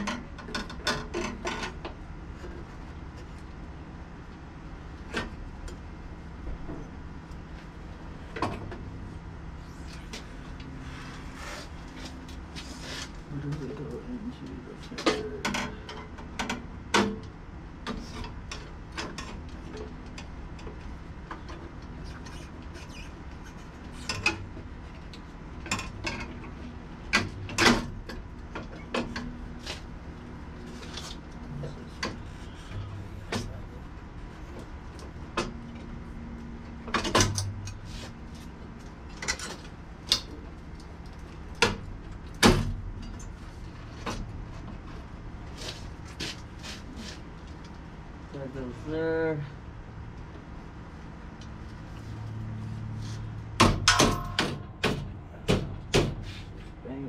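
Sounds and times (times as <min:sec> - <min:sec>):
metallic clinks and knocks of rack: 0:53.7 - 0:55.1.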